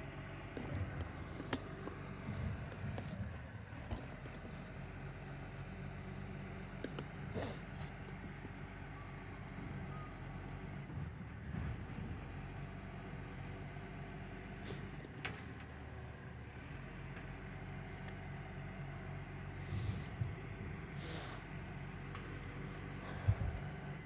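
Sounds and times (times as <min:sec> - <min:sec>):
truck engine running: 0:00.0 - 0:24.0.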